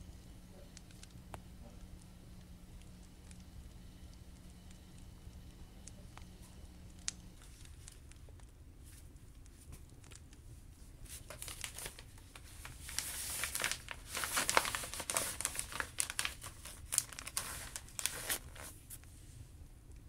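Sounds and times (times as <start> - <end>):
plastic bag crinkling: 6.8 - 10.4, 11.0 - 19.1.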